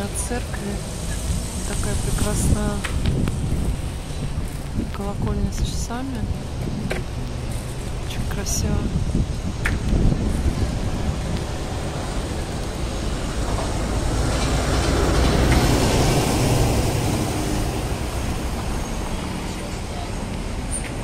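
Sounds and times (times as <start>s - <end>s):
wind rumble on microphone: 0.0s - 19.5s
vehicle passing: 5.6s - 20.7s.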